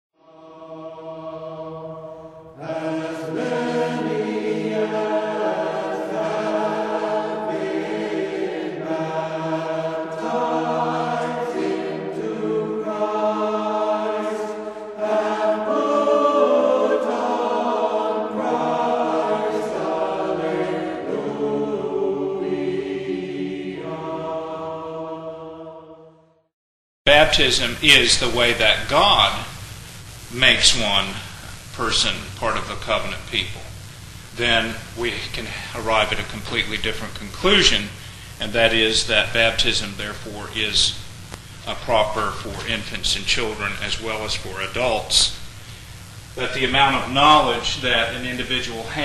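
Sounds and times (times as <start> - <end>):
choir chanting: 0.2 - 26.4.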